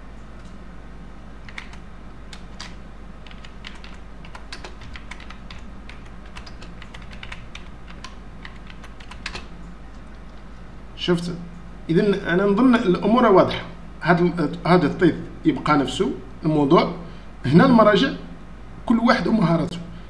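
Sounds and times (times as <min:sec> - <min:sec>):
faint steady hum: 0:00.0 - 0:20.0
keyboard typing: 0:01.4 - 0:10.2.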